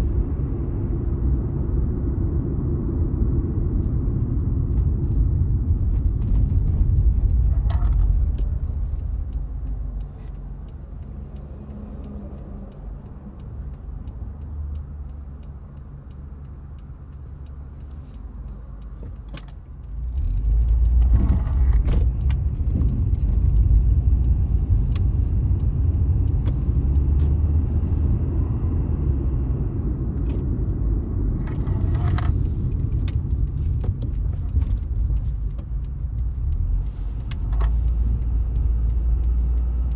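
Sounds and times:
car engine and road noise: 0:00.0 - 0:39.9.

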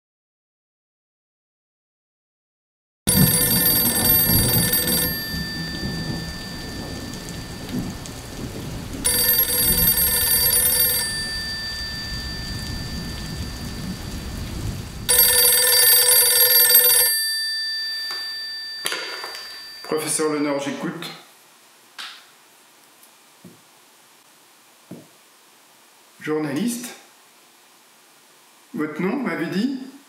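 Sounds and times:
telephone bell ringing: 0:03.1 - 0:08.4, 0:09.0 - 0:14.4, 0:15.0 - 0:20.2
low thunder rumble: 0:03.1 - 0:15.1
steady rain: 0:03.1 - 0:18.8, 0:21.2 - 0:30.0.

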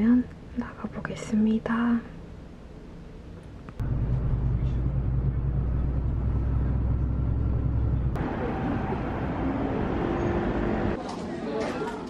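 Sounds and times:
light street noise: 0:00.0 - 0:12.0
low engine drone: 0:03.8 - 0:11.0.

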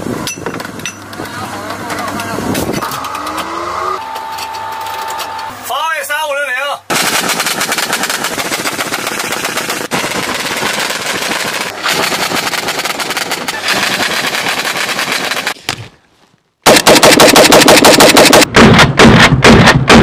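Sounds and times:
autocannon firing rapid shots: 0:06.9 - 0:15.6, 0:16.6 - 0:20.0
rifle firing rapid shots: 0:06.9 - 0:15.6, 0:16.7 - 0:20.0.

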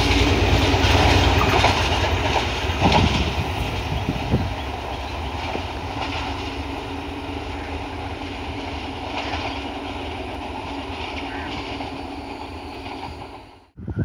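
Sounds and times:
train wheel knock: 0:00.0 - 0:07.3
diesel train rumble and hum: 0:00.0 - 0:14.0.

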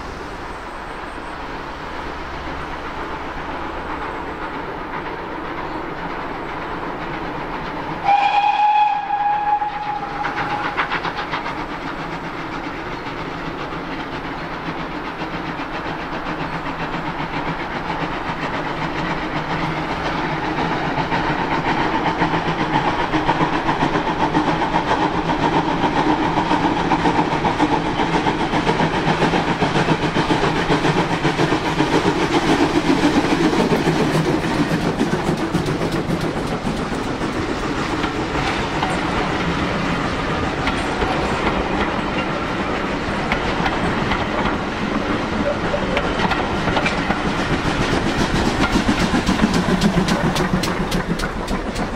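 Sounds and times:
steam locomotive exhaust: 0:00.0 - 0:51.9
train clattering on rails: 0:00.0 - 0:51.9
steam whistle: 0:08.0 - 0:10.8.

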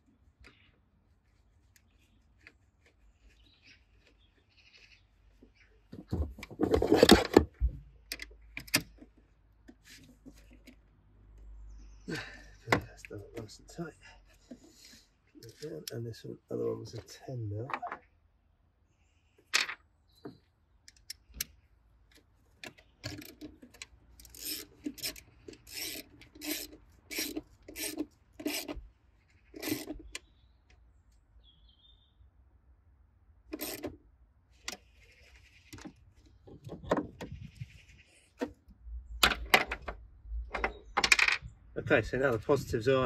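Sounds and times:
socket wrench ratcheting: 0:23.0 - 0:28.8, 0:29.6 - 0:30.2, 0:33.5 - 0:33.9.

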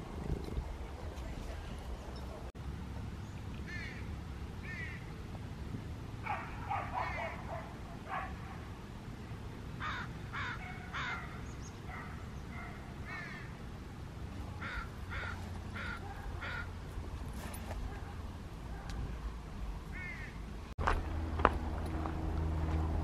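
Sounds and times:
low background noise: 0:00.0 - 0:23.0
crows cawing: 0:03.7 - 0:04.0, 0:04.6 - 0:05.0, 0:09.8 - 0:11.4, 0:13.0 - 0:13.5, 0:14.6 - 0:16.8, 0:19.9 - 0:20.4.

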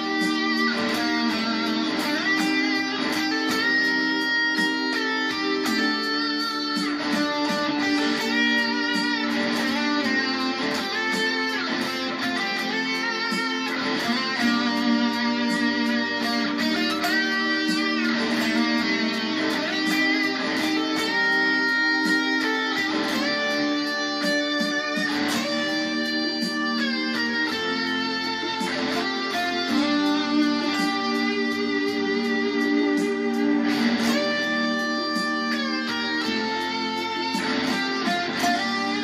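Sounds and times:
electric guitar lead melody: 0:00.0 - 0:39.0.

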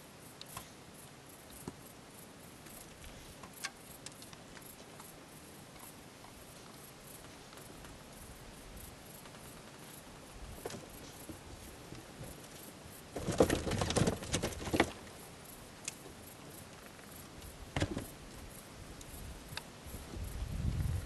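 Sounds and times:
animal scrabbling on wooden boards: 0:10.6 - 0:15.1.

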